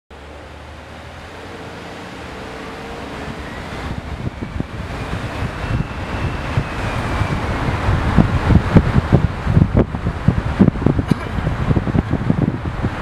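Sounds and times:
road and tyre noise: 0.1s - 13.0s
wind buffeting microphone: 0.5s - 13.0s.

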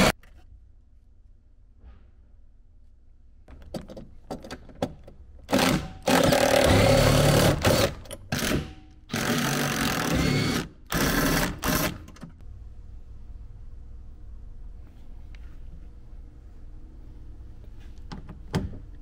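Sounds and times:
handheld power tool running: 5.5s - 12.0s.

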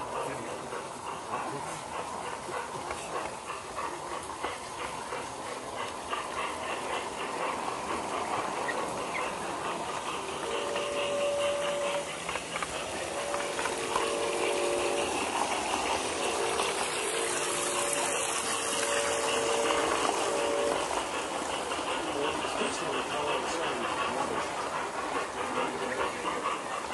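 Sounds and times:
model train rolling on track: 0.0s - 26.9s
steam whistle: 10.4s - 12.4s, 13.0s - 21.0s.

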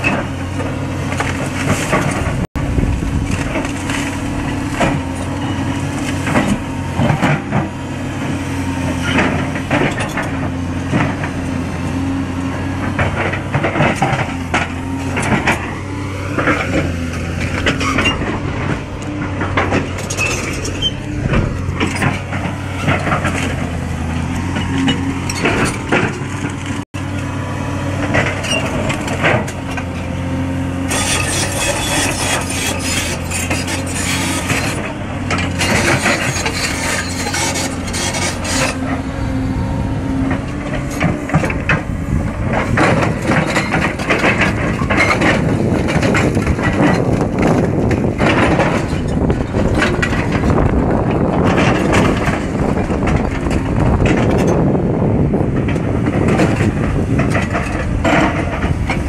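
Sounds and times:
excavator diesel engine droning: 0.0s - 59.0s
rattling clatter of knocks: 12.8s - 26.8s, 40.3s - 54.8s, 55.5s - 59.0s.

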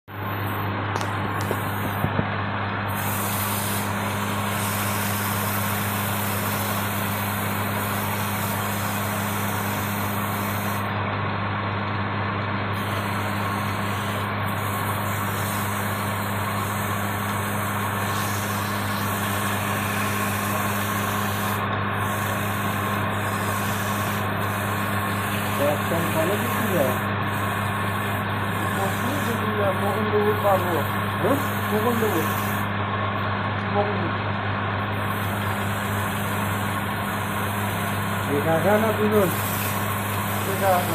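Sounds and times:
sanding rubbing hiss: 2.9s - 10.9s, 12.8s - 32.7s, 35.0s - 40.9s
wood lathe motor humming: 12.8s - 32.8s, 34.8s - 40.9s.

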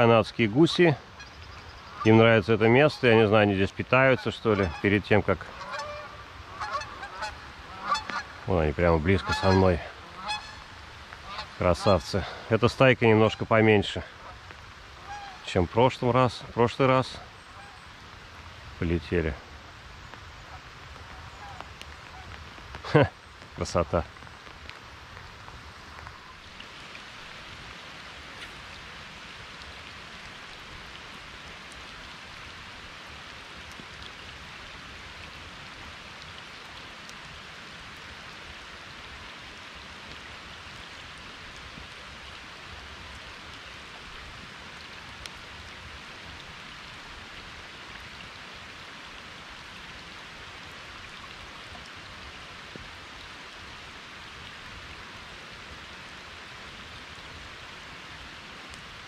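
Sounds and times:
steady rain: 0.0s - 59.0s
single raindrop taps: 7.9s - 8.3s, 20.9s - 26.7s.

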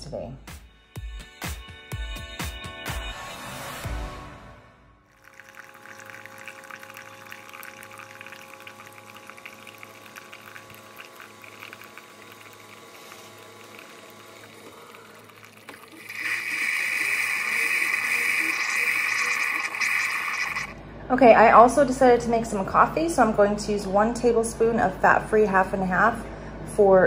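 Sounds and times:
coffee streaming into glass mug: 5.1s - 20.7s
low pump hum: 5.2s - 21.4s.

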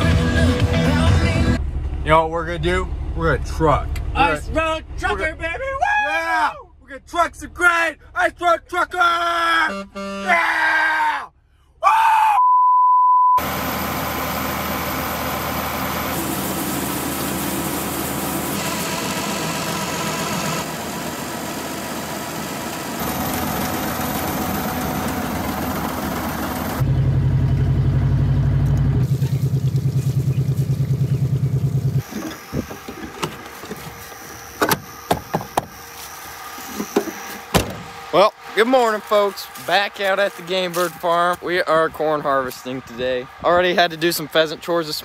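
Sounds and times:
engines running: 13.4s - 45.0s
engine with fast low throb: 14.8s - 33.2s.

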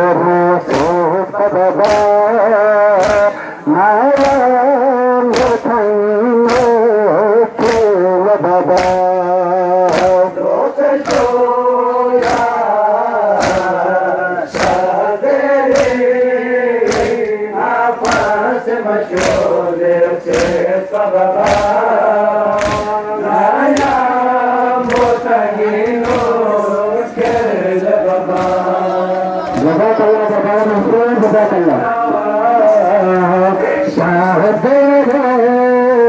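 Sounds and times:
men chanting a lament: 0.0s - 36.0s
chest-beating slaps: 0.5s - 7.0s, 7.6s - 10.4s, 11.0s - 30.0s.

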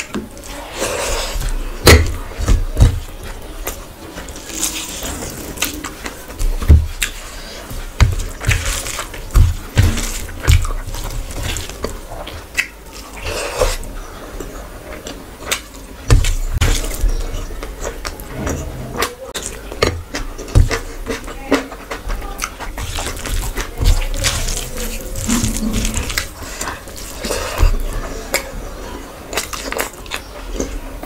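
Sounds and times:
food squelching by hand: 0.0s - 31.0s
chewing and lip smacks: 29.3s - 31.0s.

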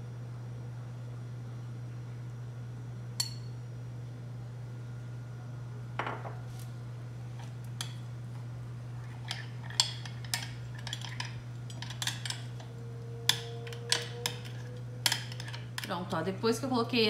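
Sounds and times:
metal spoon clinking on glass dish: 13.3s - 15.6s.

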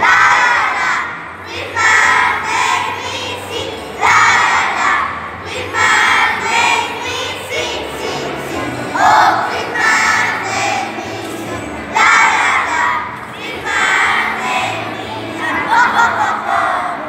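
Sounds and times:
children singing in unison: 0.0s - 17.0s
backing track music: 3.8s - 17.0s.

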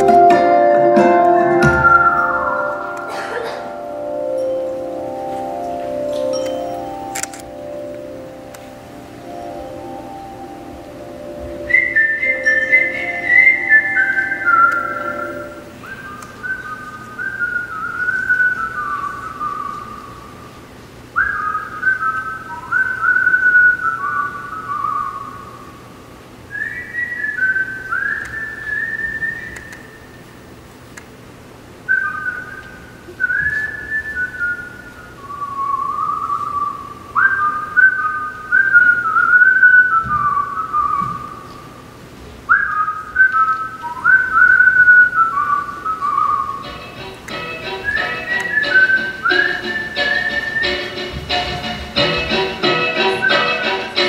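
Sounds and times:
high whistled animal calls: 11.0s - 20.4s, 21.2s - 25.9s, 42.5s - 46.8s.

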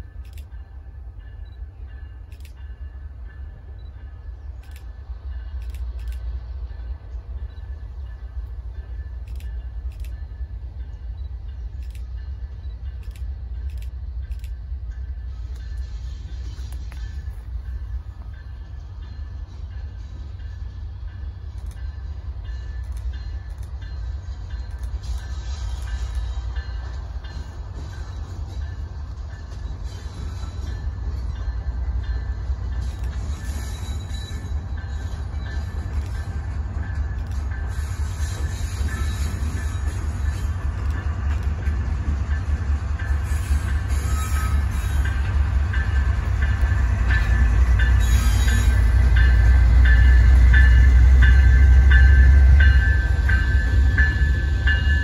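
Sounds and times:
diesel locomotives rumbling: 0.0s - 55.0s
locomotive bell ringing: 17.0s - 55.0s.

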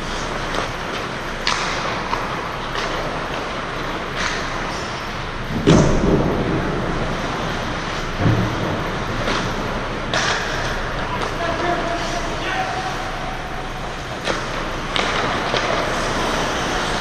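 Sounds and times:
hockey sticks and puck clacking: 0.0s - 6.2s, 7.7s - 17.0s
steady background hiss: 0.0s - 17.0s.

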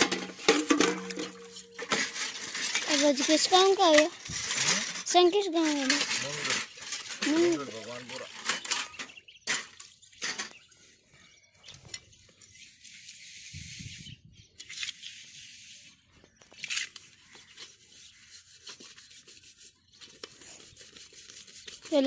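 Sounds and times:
pots being scrubbed: 0.0s - 10.5s, 17.0s - 22.0s.

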